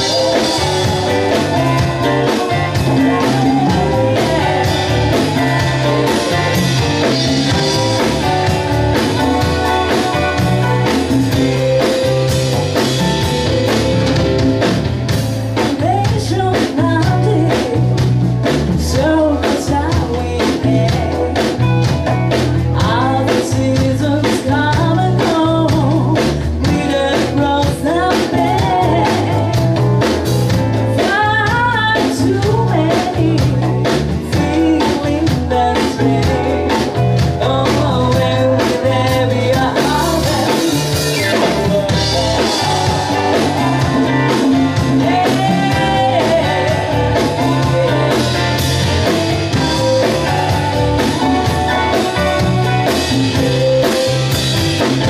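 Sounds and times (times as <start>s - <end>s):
women singing: 0.0s - 11.6s, 22.8s - 29.8s, 34.3s - 51.6s
live band playing: 0.0s - 55.0s.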